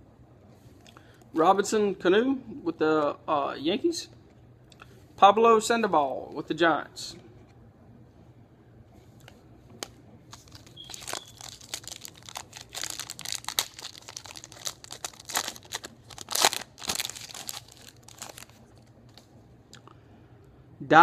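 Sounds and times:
foil wrapper crinkling and tearing: 0:10.3 - 0:18.9.

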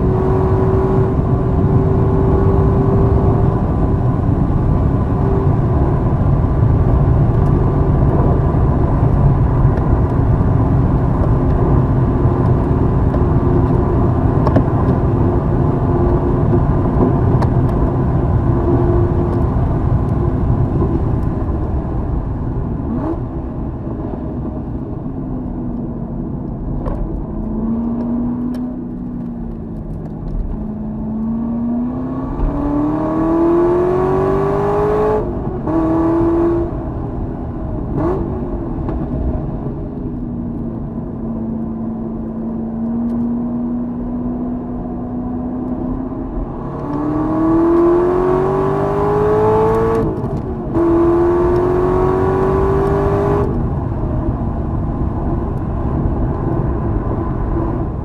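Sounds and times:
wind and road noise: 0:00.0 - 0:58.0
racing car engine accelerating: 0:44.6 - 0:53.6.

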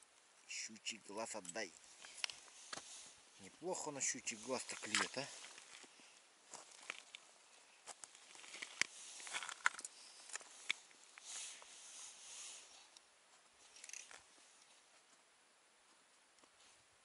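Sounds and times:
soft hiss: 0:00.0 - 0:17.0
small clicks of fishing rod: 0:13.7 - 0:14.2.

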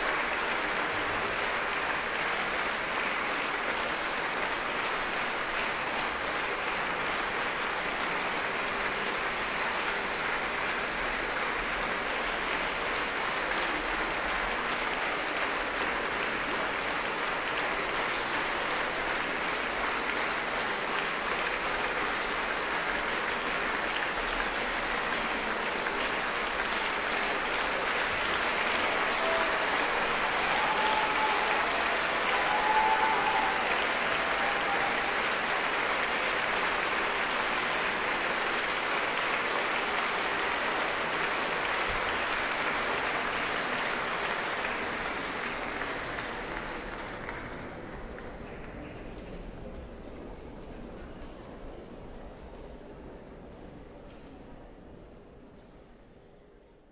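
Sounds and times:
audience applauding: 0:00.0 - 0:49.2.

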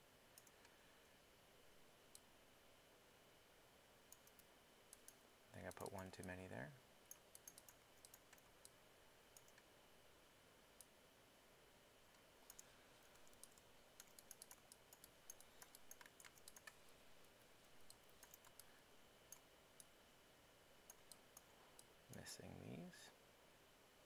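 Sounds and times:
mouse and keyboard clicks: 0:07.1 - 0:08.8, 0:12.5 - 0:16.8, 0:17.8 - 0:18.7.

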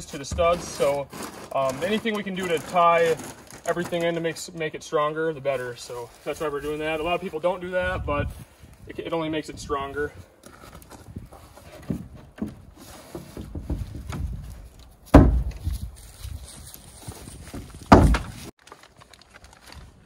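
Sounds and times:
loud knocks on wooden wall: 0:15.1 - 0:15.7, 0:17.9 - 0:18.3.

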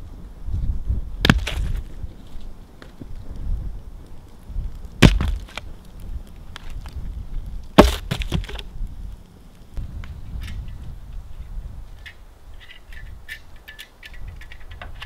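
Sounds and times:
firewood dropped on stone: 0:01.2 - 0:02.0, 0:05.0 - 0:05.7, 0:07.8 - 0:08.7
wood clattering: 0:01.3 - 0:01.9, 0:05.0 - 0:05.6, 0:07.8 - 0:08.6.

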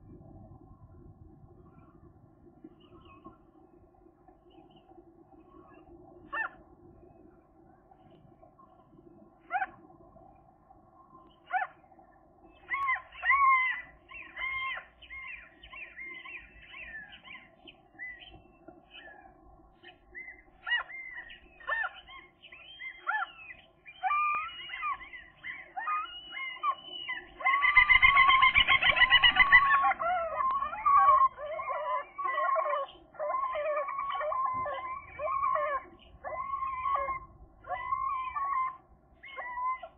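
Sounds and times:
gulls calling: 0:12.5 - 0:39.9.

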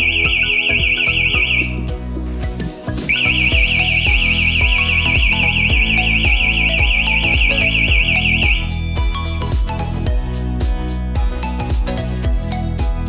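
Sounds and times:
alarm siren warbling: 0:00.0 - 0:01.9, 0:03.1 - 0:09.0
background music: 0:00.0 - 0:13.0.

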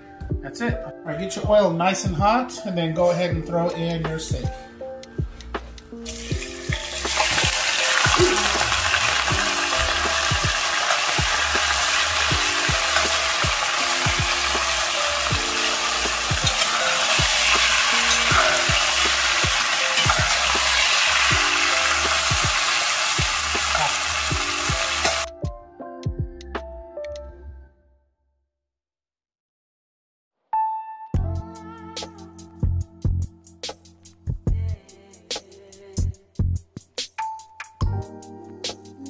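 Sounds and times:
meat sizzling in hot oil: 0:06.0 - 0:25.3
metal spatula stirring: 0:15.6 - 0:21.9.

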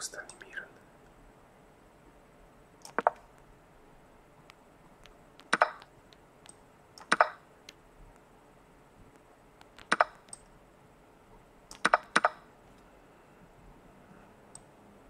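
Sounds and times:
chess move clicks: 0:02.8 - 0:03.4, 0:04.4 - 0:08.3, 0:09.0 - 0:10.5, 0:11.7 - 0:12.4.

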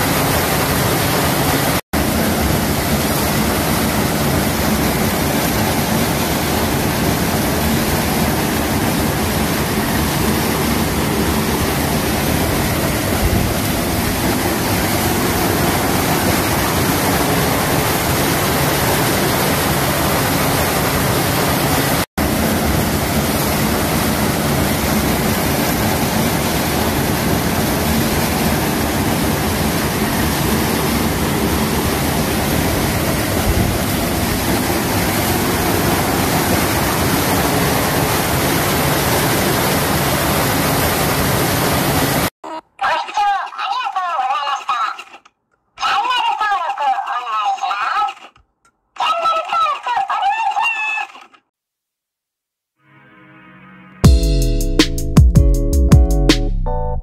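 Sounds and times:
water pouring into a pool: 0:00.0 - 0:42.3.

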